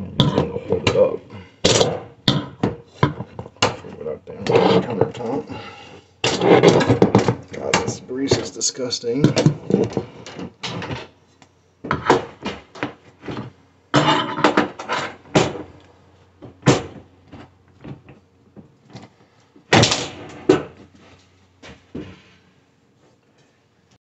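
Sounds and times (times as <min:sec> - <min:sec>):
metal tool scraping: 0:06.2 - 0:07.0.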